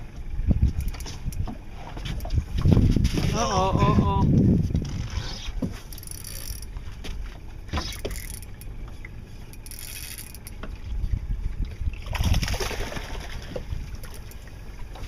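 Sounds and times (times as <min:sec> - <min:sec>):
wind buffeting microphone: 0:00.0 - 0:05.2, 0:10.6 - 0:14.0
water lapping against boat hull: 0:00.0 - 0:15.0.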